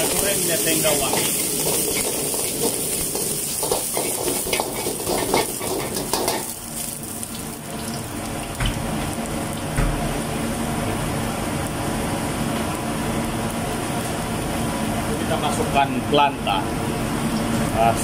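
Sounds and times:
leaves sizzling in hot oil: 0.0 - 17.9
metal ladle scraping wok: 0.8 - 6.5.

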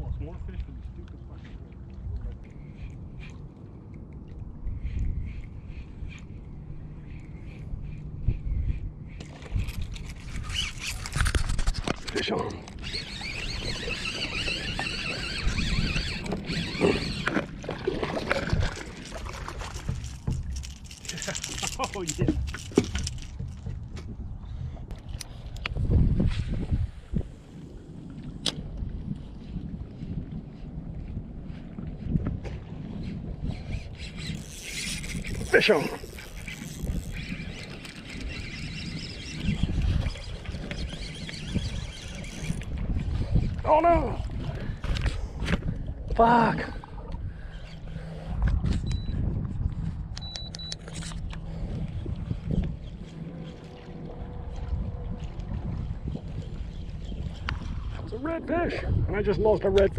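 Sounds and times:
water noise: 0.0 - 59.9
wind: 0.0 - 59.9
fishing reel whining: 9.2 - 12.1, 12.7 - 17.5, 18.5 - 23.6, 33.4 - 43.6
handling knocks and rustles: 18.1 - 24.2.

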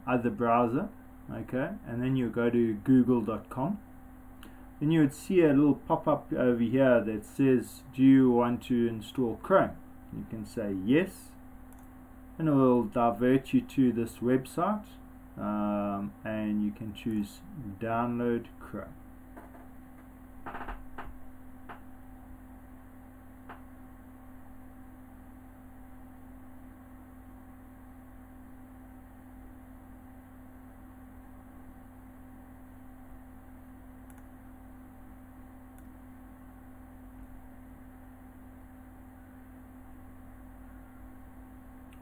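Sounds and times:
electrical hum: 0.0 - 42.0.

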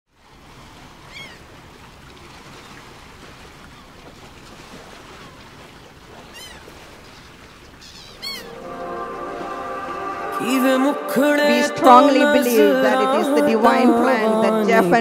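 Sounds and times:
ocean surf on beach: 0.2 - 15.0
seagulls calling: 1.1 - 1.5, 6.2 - 15.0
music: 8.4 - 14.7.

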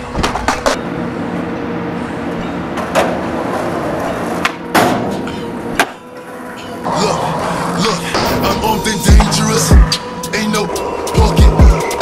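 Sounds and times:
skateboard wheels rolling on concrete: 0.0 - 0.9, 2.2 - 6.0.

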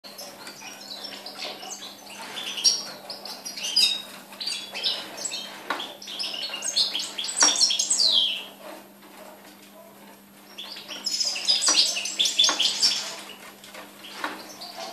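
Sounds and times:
goldfinch twittering: 10.5 - 13.3.

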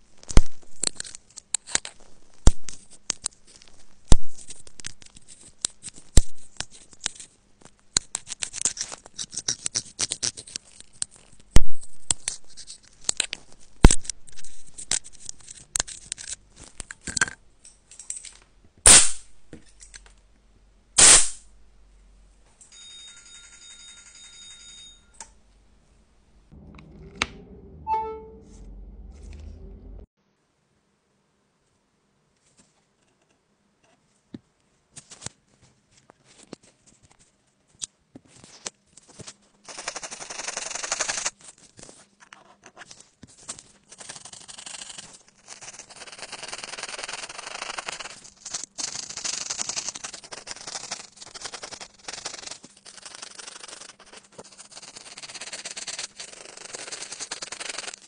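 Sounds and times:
steady tone: 26.5 - 30.1.

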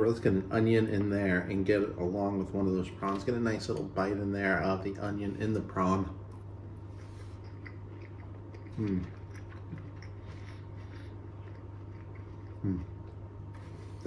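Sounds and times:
man chewing food: 6.2 - 14.0
man humming mm: 8.6 - 9.2, 12.5 - 13.1.

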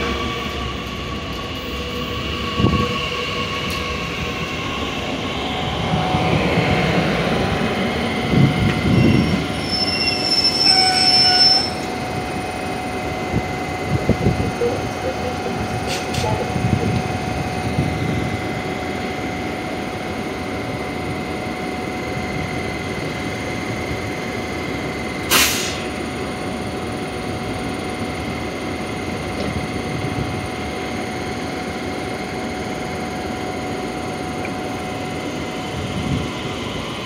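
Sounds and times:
train electrical hum with whine: 0.0 - 37.0
short sharp hiss: 25.3 - 25.8.

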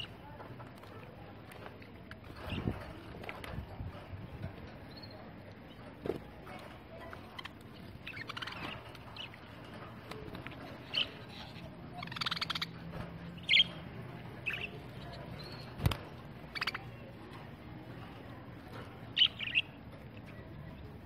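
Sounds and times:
budgerigars chirping and chattering: 7.0 - 17.2, 19.0 - 20.9.

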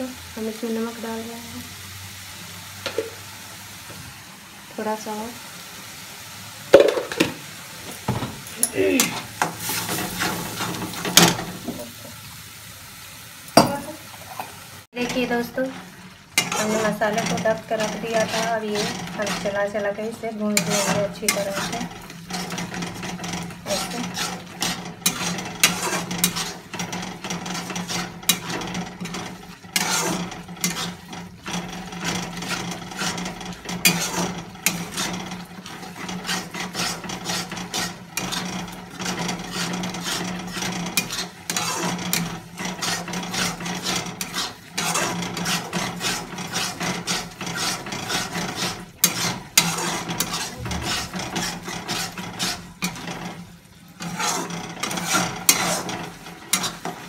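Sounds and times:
spatula scraping iron pan: 8.6 - 11.9, 14.4 - 57.0.

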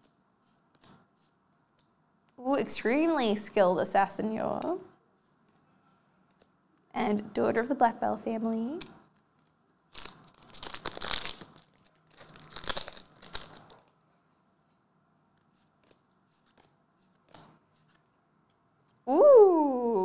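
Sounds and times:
wrapper crinkling: 9.4 - 14.0
foil pack tearing open: 9.9 - 13.8.

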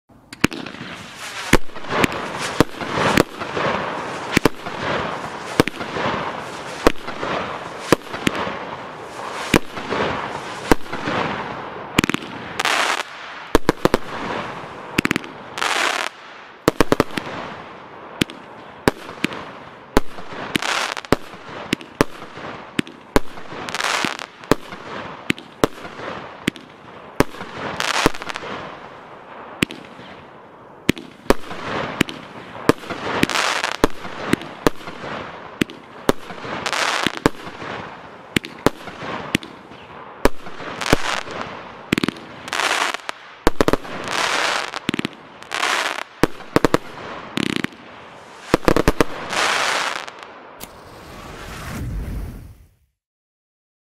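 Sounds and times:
firework launches and bursts: 0.3 - 30.2, 30.9 - 53.0
firework hissing: 0.9 - 8.3, 48.2 - 52.8.

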